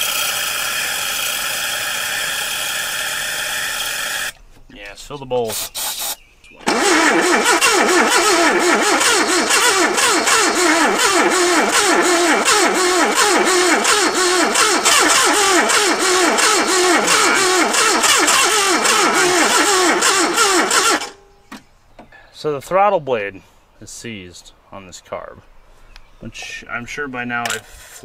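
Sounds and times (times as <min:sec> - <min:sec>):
starter cranking engine: 0:06.6 - 0:21.2.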